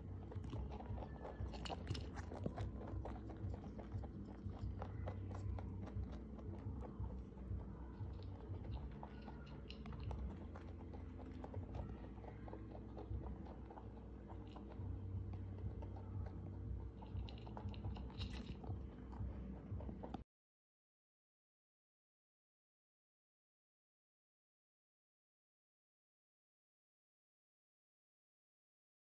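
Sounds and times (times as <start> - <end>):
rabbits crunching dry hay: 0.0 - 20.2.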